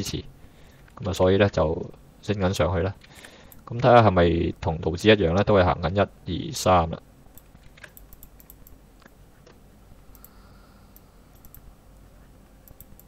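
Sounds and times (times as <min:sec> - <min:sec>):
mouse and keyboard clicks: 0:11.4 - 0:11.7, 0:12.6 - 0:13.0.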